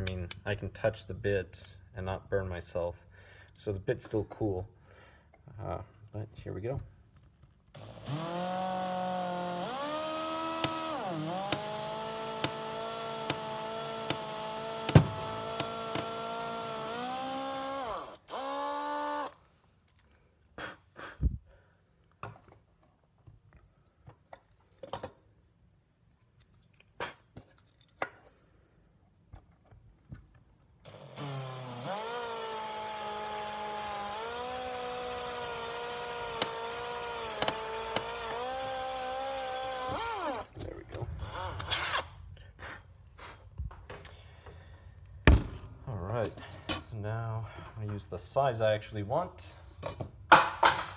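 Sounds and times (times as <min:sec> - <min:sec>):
cordless drill drilling into metal: 0:07.8 - 0:19.4, 0:30.9 - 0:40.6, 0:41.2 - 0:42.1.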